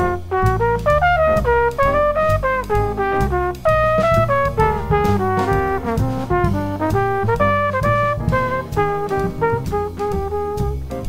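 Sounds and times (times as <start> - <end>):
bass: 0.0 - 11.0
drum kit: 0.0 - 11.0
trumpet jazz solo: 0.0 - 11.0.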